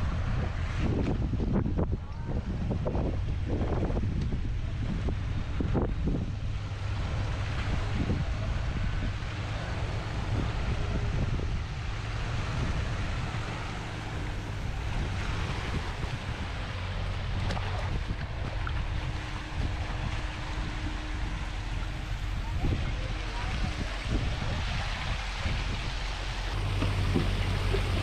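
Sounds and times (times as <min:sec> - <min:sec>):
vehicle engine drone: 0:00.0 - 0:28.0
water sloshing around wheels: 0:00.0 - 0:28.0
wind buffeting microphone: 0:00.0 - 0:28.0.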